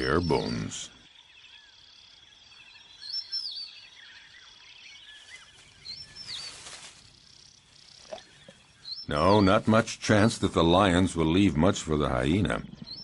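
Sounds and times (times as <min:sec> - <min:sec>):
high insect trill: 0:00.0 - 0:08.8
bird chirps: 0:00.0 - 0:10.4, 0:12.1 - 0:13.0.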